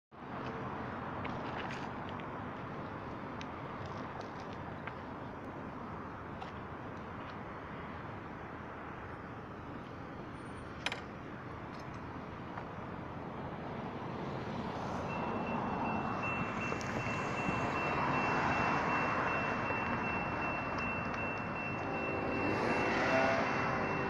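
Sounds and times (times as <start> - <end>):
road traffic: 0.1 - 24.0
electronic crossing bell ringing: 15.1 - 24.0.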